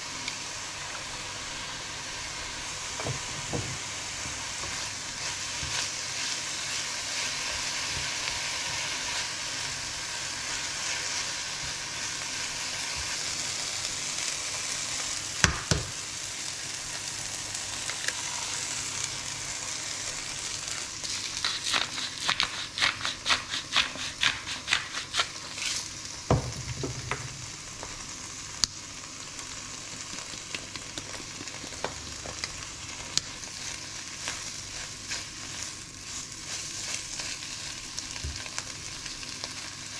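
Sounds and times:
food sizzling in oil: 0.0 - 39.9
spatula strokes in pan: 0.6 - 14.0, 18.1 - 26.0, 33.4 - 38.7.

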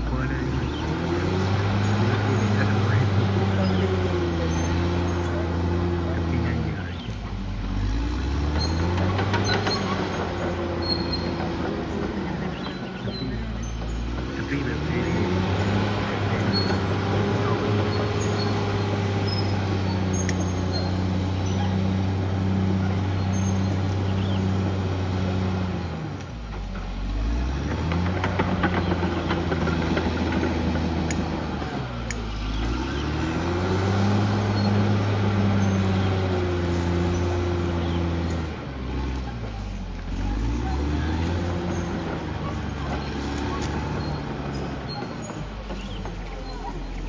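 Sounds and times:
bulldozer diesel engine running: 0.0 - 47.0.

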